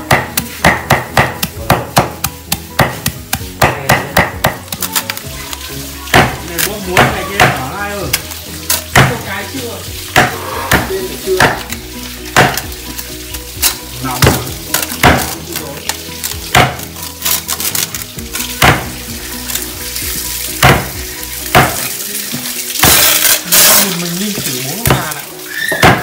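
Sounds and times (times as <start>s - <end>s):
fish slapping against metal pot: 0.0s - 26.0s
hands squelching raw fish: 9.9s - 26.0s.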